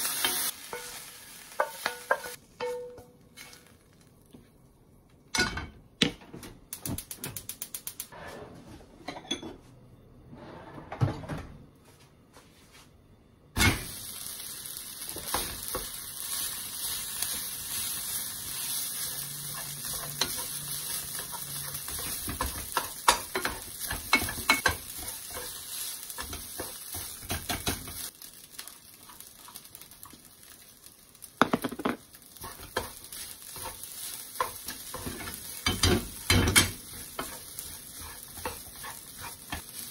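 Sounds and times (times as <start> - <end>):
rice sizzling in hot oil: 0.0 - 4.3, 13.6 - 39.9
spatula scraping pan: 18.6 - 28.1, 32.4 - 39.9.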